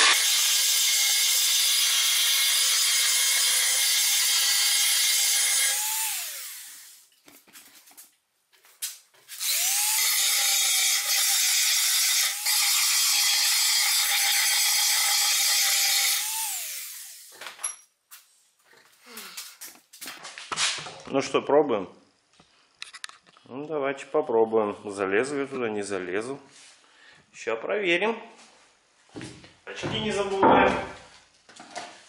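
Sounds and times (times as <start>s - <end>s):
belt sander grinding metal: 0.0s - 7.0s, 9.3s - 17.3s.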